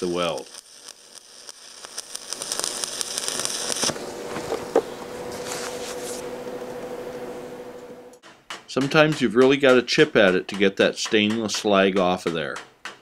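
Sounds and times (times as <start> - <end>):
welding arc crackling: 0.0 - 6.0
steady hum: 2.0 - 8.2.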